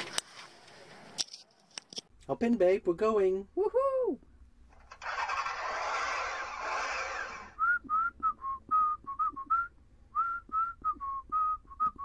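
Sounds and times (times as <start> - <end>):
person whistling a tune: 7.6 - 12.0.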